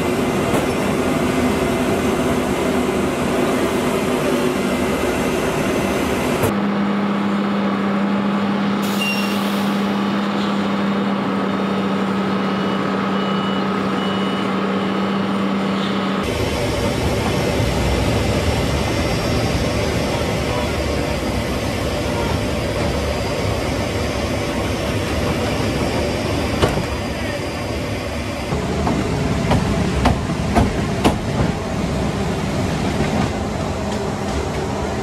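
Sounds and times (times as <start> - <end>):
short beeps: 9.0 - 9.4, 12.4 - 15.3.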